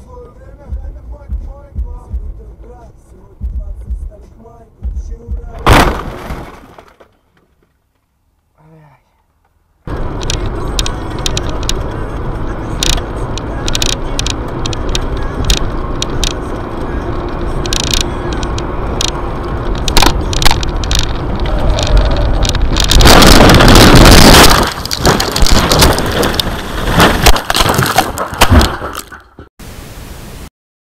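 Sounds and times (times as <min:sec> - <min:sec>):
car road and engine noise: 0:00.0 - 0:29.5
loud distorted crash: 0:05.6 - 0:06.9, 0:19.8 - 0:29.2
scattered clicks: 0:09.9 - 0:29.3.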